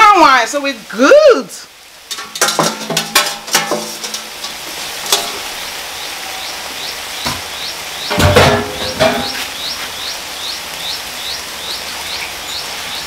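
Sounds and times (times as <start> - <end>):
bird chirps: 5.6 - 13.0.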